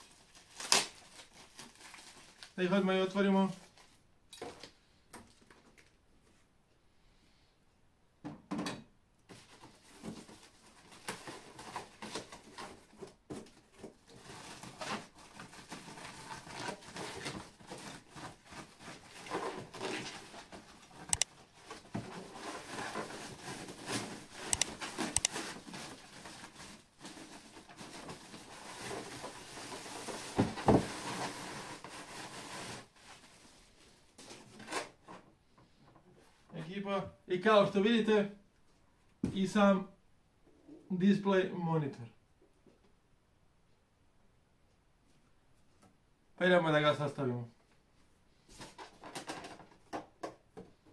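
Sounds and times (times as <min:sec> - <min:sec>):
plastic bag and foam rustling: 0:00.0 - 0:04.0, 0:09.3 - 0:35.1.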